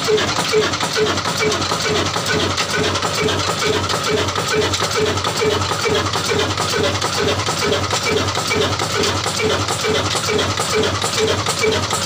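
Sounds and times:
stationary diesel engine running: 0.0 - 12.0.

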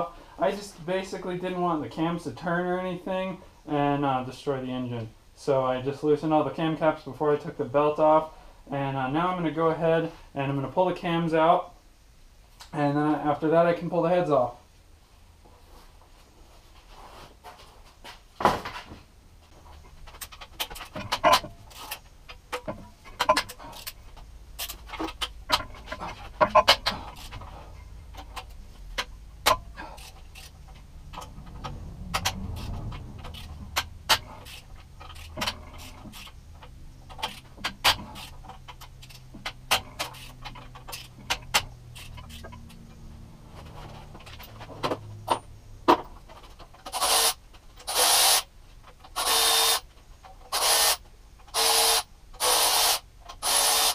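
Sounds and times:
metal tools clinking on engine part: 19.8 - 43.0.

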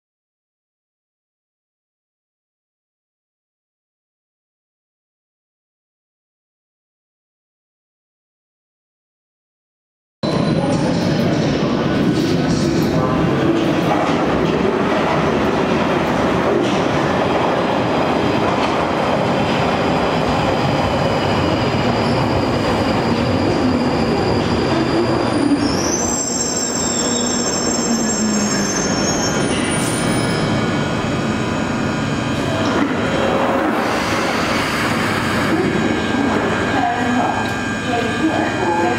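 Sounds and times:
train wheel-on-rail rumble: 10.3 - 38.9
train whine falling in pitch: 20.9 - 38.9
train brakes squealing: 21.2 - 30.8.

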